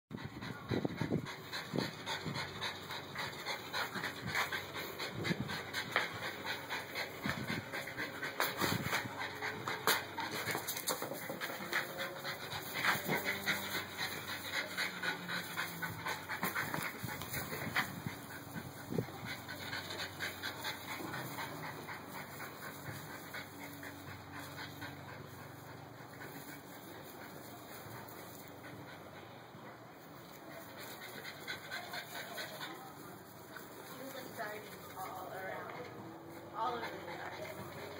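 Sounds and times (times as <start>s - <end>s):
dog panting: 0.1s - 37.9s.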